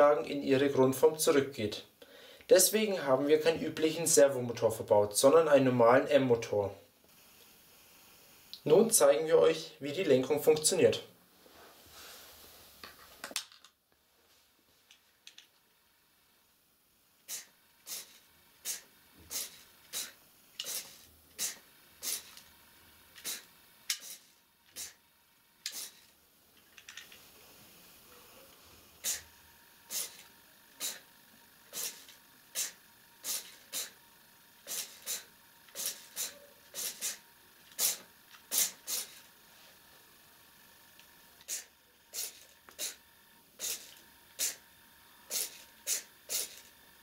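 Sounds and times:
small motor whirring: 17.2 - 47.0.

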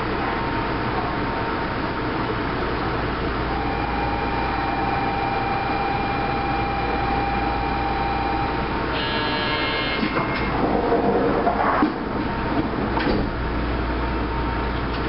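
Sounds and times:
train equipment hum and hiss: 0.0 - 15.0
steady high tone: 3.4 - 10.2
electronic signal tones: 3.5 - 10.2.

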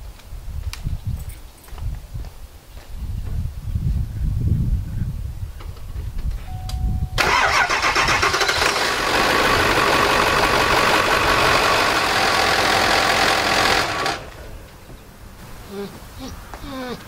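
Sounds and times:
diesel engine cranking and idling: 7.2 - 14.9.

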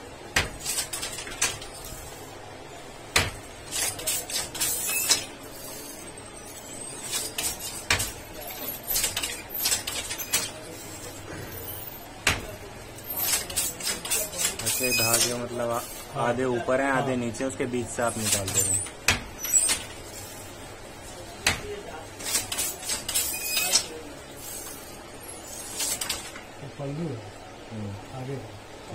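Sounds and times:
shuttle and loom rattling clicks: 0.4 - 2.0, 7.0 - 10.7, 12.2 - 15.4, 21.4 - 23.9.

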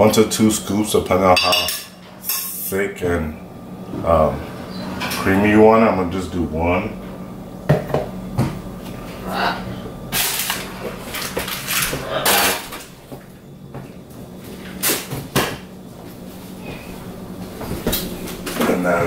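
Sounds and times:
containers clattering and rustling: 10.1 - 13.0.

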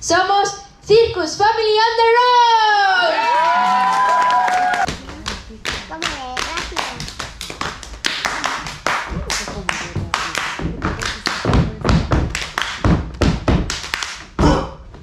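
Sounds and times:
people clapping: 3.2 - 14.4
feet stamping on wooden stage: 4.7 - 15.0.

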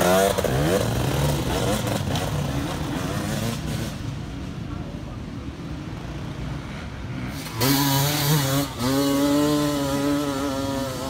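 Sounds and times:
dirt bike engine revving: 0.0 - 4.0, 7.2 - 11.0.

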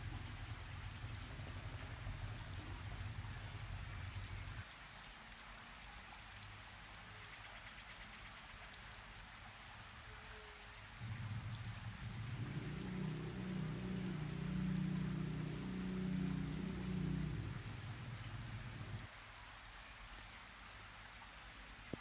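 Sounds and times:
low steady hum: 0.0 - 4.7, 10.9 - 19.1
faint steady hiss: 0.0 - 22.0.

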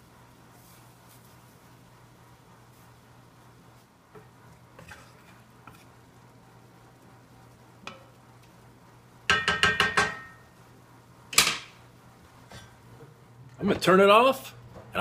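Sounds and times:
spatula stirring in skillet: 2.6 - 10.5
spatula tapping skillet: 7.8 - 8.6, 9.2 - 10.5.

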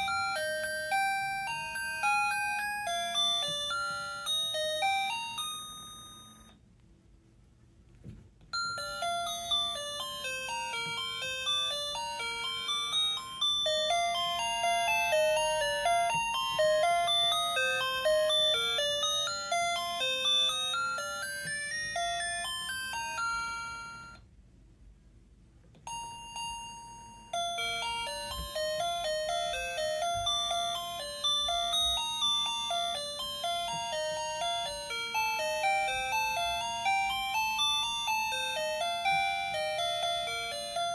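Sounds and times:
electronic chime melody: 0.0 - 6.5.

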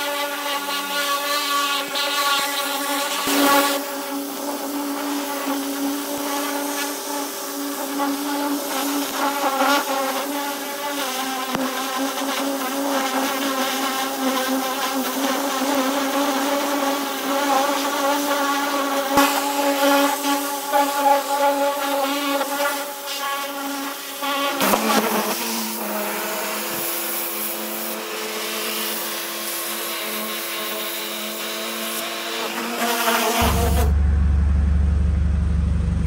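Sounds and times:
water jet spraying metal: 0.0 - 33.9
pressure washer motor droning: 24.8 - 36.0.

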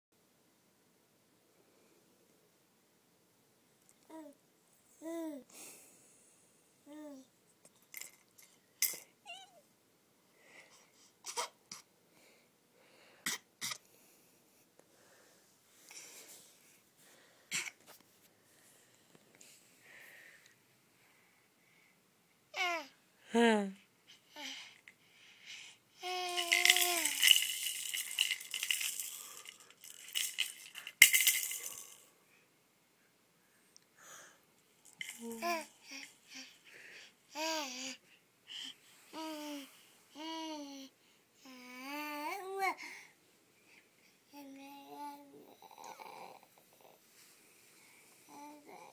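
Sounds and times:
baby cooing: 22.6 - 22.9, 26.0 - 27.3, 35.1 - 36.6, 37.3 - 42.8, 44.3 - 46.9
toy rattle shaken: 26.0 - 32.0, 34.8 - 36.1.

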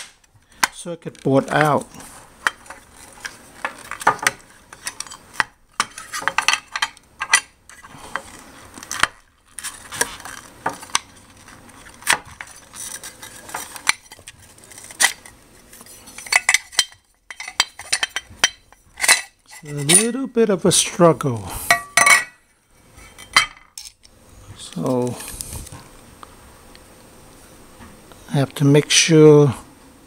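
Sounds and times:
metallic clicks clinks and scrapes: 2.5 - 20.1.

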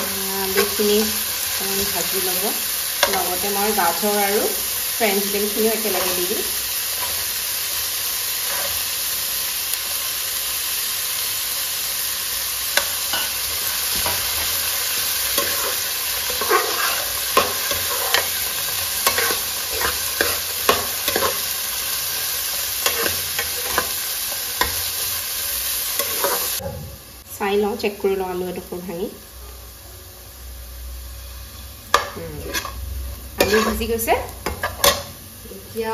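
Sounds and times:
vegetables sizzling in hot oil: 0.0 - 35.9
metal spatula scraping and knocking pan: 33.4 - 35.1.

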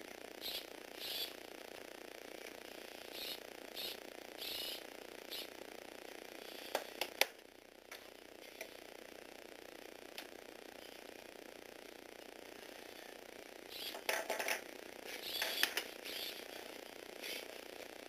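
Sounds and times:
steady motor hum: 0.0 - 18.0
toy motors whirring: 0.4 - 1.4, 3.1 - 5.5, 13.7 - 16.6.

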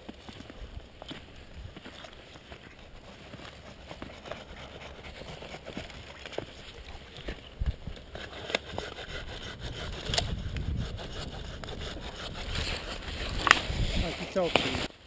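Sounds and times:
twigs scraping and snapping: 0.0 - 15.0
wind rumble on microphone: 6.8 - 8.0, 9.1 - 14.5.

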